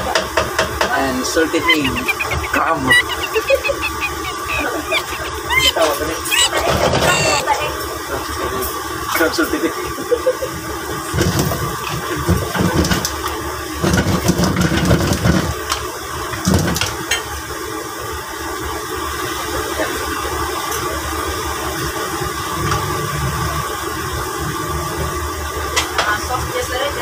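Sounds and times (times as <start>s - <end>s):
gas stove burner rumbling: 6.7s - 26.7s.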